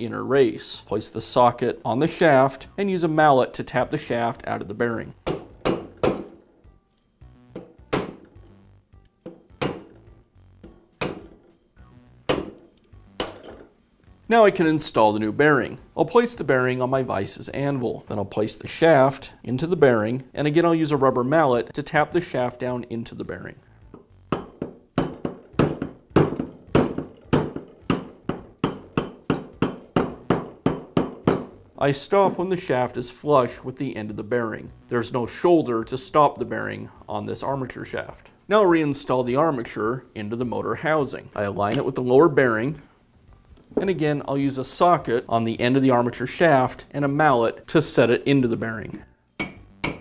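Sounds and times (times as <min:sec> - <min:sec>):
mallet striking metal: 0:05.2 - 0:06.4, 0:07.5 - 0:08.3, 0:09.3 - 0:10.0, 0:10.6 - 0:11.4, 0:12.3 - 0:13.6, 0:24.3 - 0:31.6, 0:49.4 - 0:50.0.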